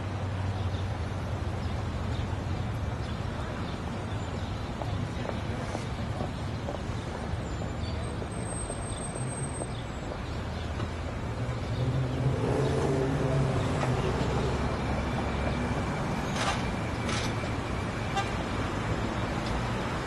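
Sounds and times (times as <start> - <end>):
traffic hum: 0.0 - 20.0
motor vehicle engine: 10.4 - 20.0.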